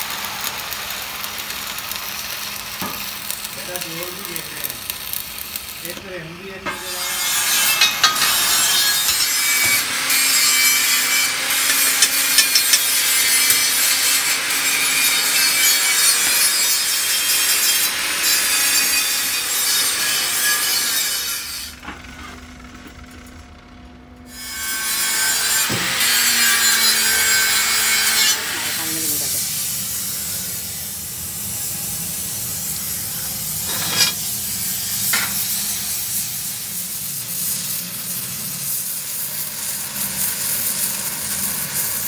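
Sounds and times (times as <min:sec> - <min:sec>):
arc welding crackle: 0:00.0 - 0:23.5, 0:24.2 - 0:42.0.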